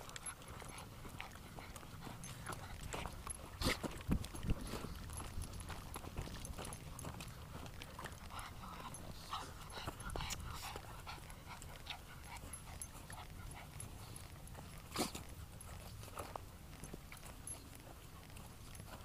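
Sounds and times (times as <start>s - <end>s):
dog whimpering and panting: 0.0s - 19.0s
footsteps on gravel: 0.5s - 10.1s.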